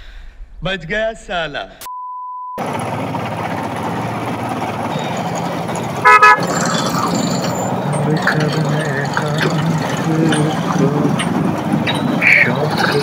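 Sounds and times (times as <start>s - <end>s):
motorcycle engine and road noise: 2.6s - 13.0s
vehicle horn blast: 6.0s - 6.6s.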